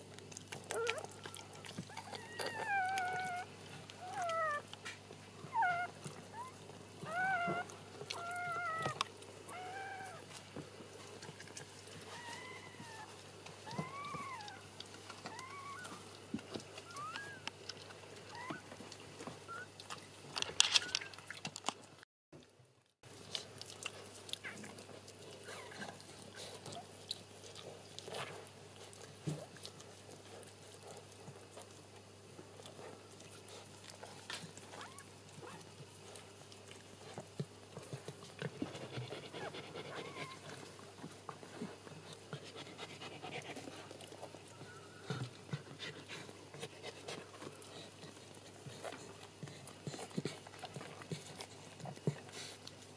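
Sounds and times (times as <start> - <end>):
dog panting: 32.4 - 52.9.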